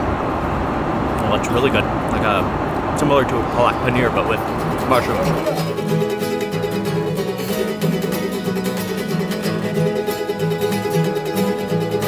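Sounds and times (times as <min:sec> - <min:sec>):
plucked string music: 0:04.4 - 0:12.0.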